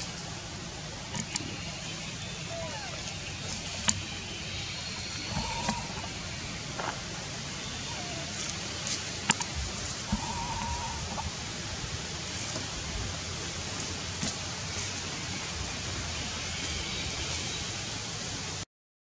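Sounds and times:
outdoor background hiss: 0.0s - 18.6s
faint drawn-out animal calls: 1.1s - 6.9s, 7.6s - 8.9s, 10.0s - 11.4s.

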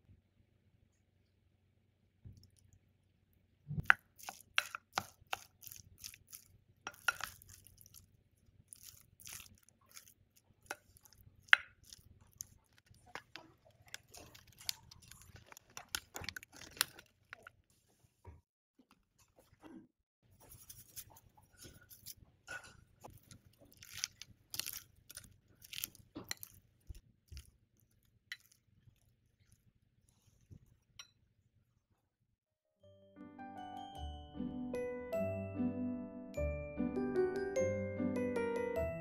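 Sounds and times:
utensil taps and scrapes on food: 3.8s - 8.1s, 8.7s - 17.5s, 20.5s - 29.6s.

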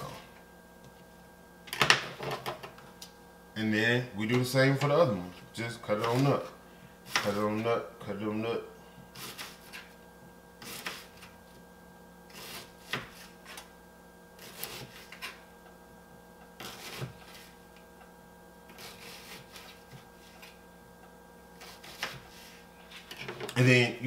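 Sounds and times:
steady hum: 0.0s - 24.0s
knife chopping on cutting board: 12.3s - 13.3s, 14.4s - 15.4s, 16.6s - 17.4s, 21.6s - 22.3s.

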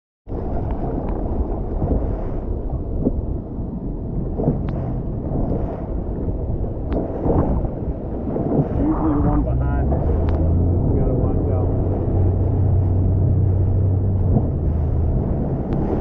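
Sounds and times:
water washing: 0.3s - 16.0s
wind buffeting microphone: 0.3s - 16.0s.

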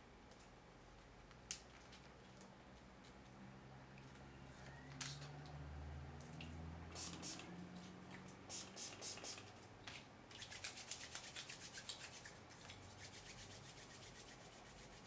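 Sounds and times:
hands rubbing: 10.5s - 15.0s.

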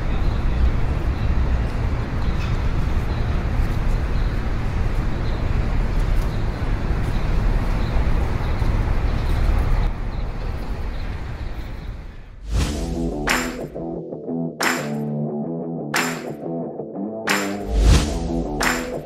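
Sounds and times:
steady outdoor rumble: 0.0s - 19.0s.

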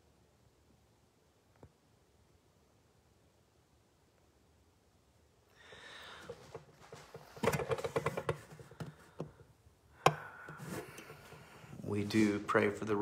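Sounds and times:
phone rustling: 5.8s - 12.8s
taps and knocks on phone: 10.0s - 10.6s.

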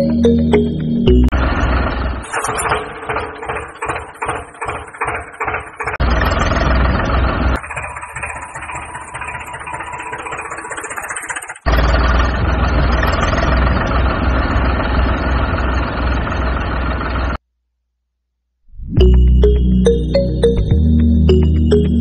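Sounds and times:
tractor engine idling: 0.0s - 17.4s.

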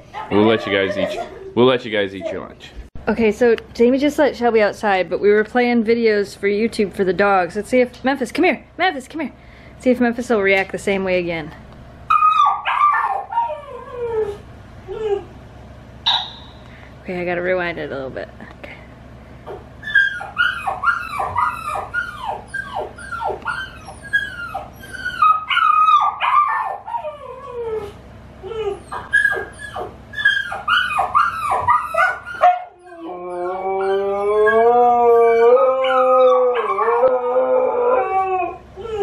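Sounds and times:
puppies whimpering on tv: 0.1s - 1.6s, 12.1s - 15.4s, 19.5s - 39.0s
dog howling: 12.1s - 15.3s, 19.9s - 39.0s.

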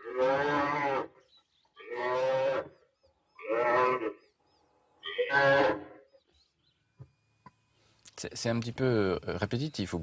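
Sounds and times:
buffalo calf distress bawls: 0.0s - 1.2s, 1.8s - 2.8s, 3.4s - 4.2s, 5.0s - 6.0s.

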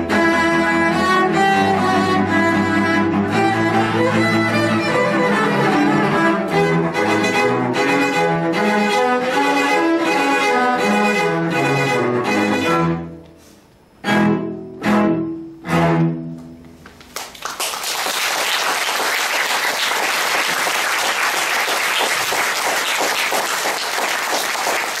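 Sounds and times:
cello quartet playing chords: 0.0s - 16.9s
audience applause: 17.1s - 25.0s.

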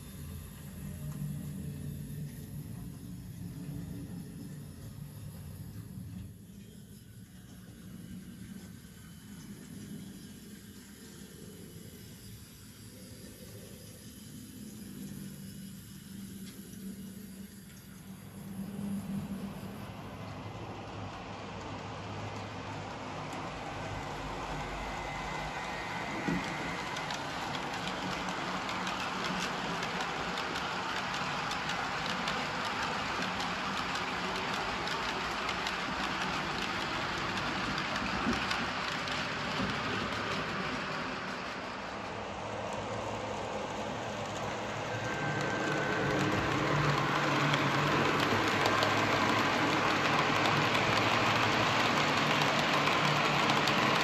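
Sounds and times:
model train wheels on rails: 0.0s - 54.0s
wheel clicks on track: 44.3s - 54.0s.

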